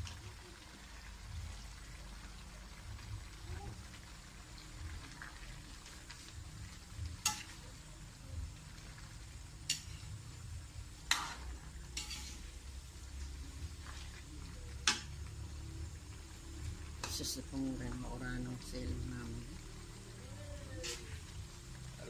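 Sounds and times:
faint sizzling simmer: 0.0 - 22.0
metal ladle clinking on wok: 11.1 - 12.5.

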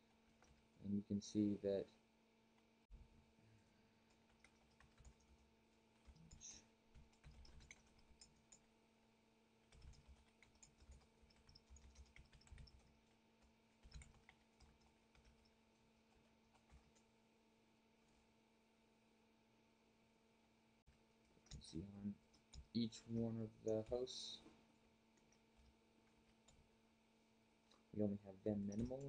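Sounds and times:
faint keyboard typing: 0.0 - 0.8, 3.6 - 8.8, 9.6 - 17.3, 20.8 - 26.9, 28.5 - 29.0.

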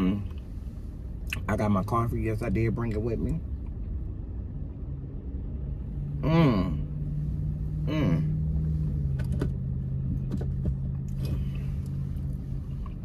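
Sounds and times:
engine and road drone: 0.0 - 13.0
brief vocal sound: 6.2 - 6.8.

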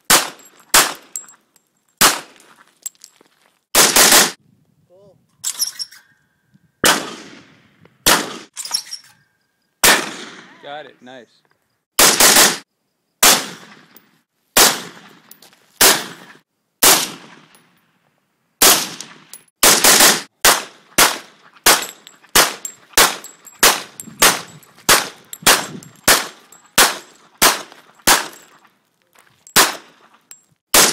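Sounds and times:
rifle shots: 0.1 - 1.1, 2.0 - 2.4, 3.8 - 4.4, 6.8 - 8.5, 9.8 - 10.5, 12.0 - 12.6, 13.2 - 14.0, 14.6 - 17.6, 18.6 - 28.5, 29.6 - 30.0
handgun shots: 0.1 - 1.2, 2.0 - 2.4, 3.8 - 4.4, 6.8 - 7.4, 8.0 - 8.5, 9.8 - 10.5, 12.0 - 12.6, 13.2 - 14.0, 14.6 - 15.2, 15.8 - 17.6, 18.6 - 28.5, 29.5 - 30.0.

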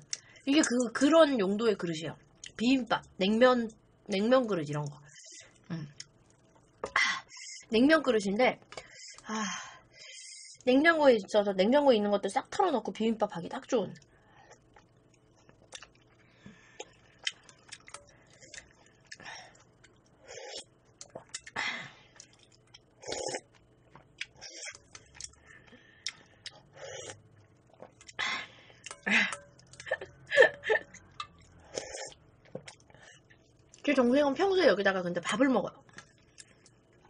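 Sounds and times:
chewing: 14.5 - 21.6, 22.2 - 28.2
slurping: 14.5 - 21.6, 22.2 - 28.5, 31.2 - 33.0.

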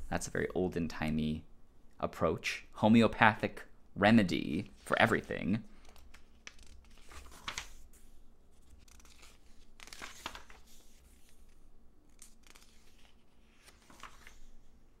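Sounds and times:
magazine pages turning: 5.8 - 14.7.

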